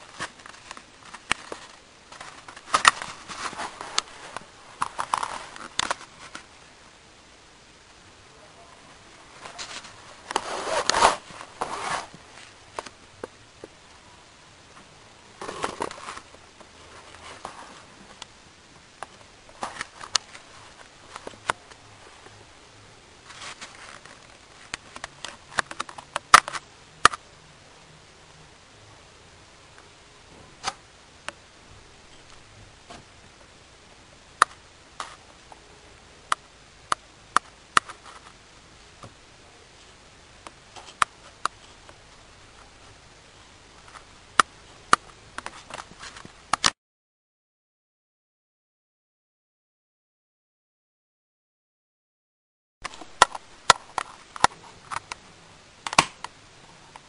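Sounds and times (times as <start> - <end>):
rustling and scraping: 0.0 - 6.5, 9.1 - 13.3, 14.8 - 18.2, 19.1 - 22.4, 23.2 - 26.6, 37.8 - 38.4, 45.3 - 46.4.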